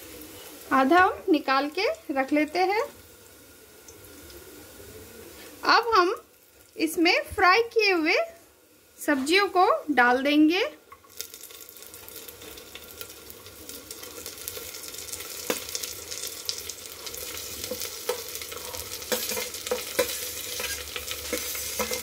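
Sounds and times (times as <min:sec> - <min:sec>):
vegetables sizzling: 0:00.0 - 0:22.0
metal spatula scraping steel: 0:17.7 - 0:22.0.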